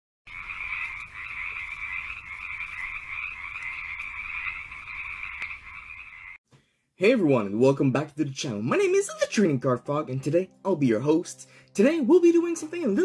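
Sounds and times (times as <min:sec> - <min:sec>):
frogs calling: 0:00.3 - 0:06.4.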